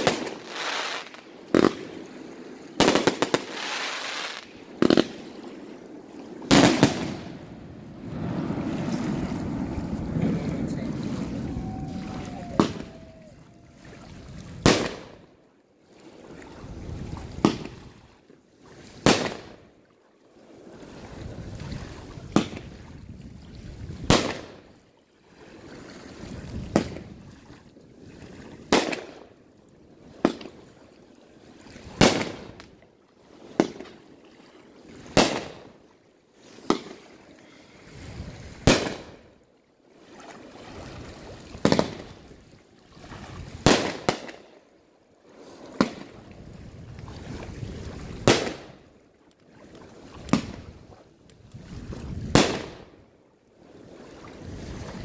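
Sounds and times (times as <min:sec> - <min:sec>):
fireworks bangs: 0:00.0 - 0:02.0, 0:02.8 - 0:05.4, 0:06.4 - 0:13.4, 0:38.6 - 0:39.2, 0:43.6 - 0:44.4, 0:48.2 - 0:48.7, 0:52.3 - 0:52.8.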